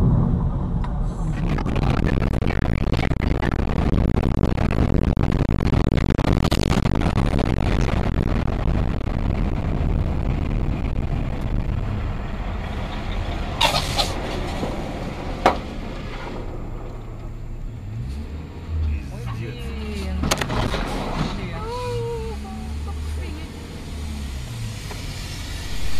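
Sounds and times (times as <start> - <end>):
short low rumble: 0.0 - 19.1, 24.4 - 25.9
road and engine noise: 0.0 - 25.9.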